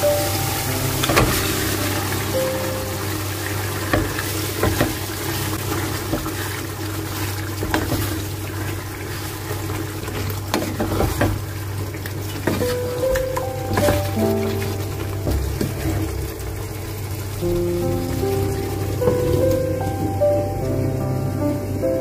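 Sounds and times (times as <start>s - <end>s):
chicken sizzling in sauce: 0.0s - 22.0s
wooden spoon stirring: 0.2s - 17.4s.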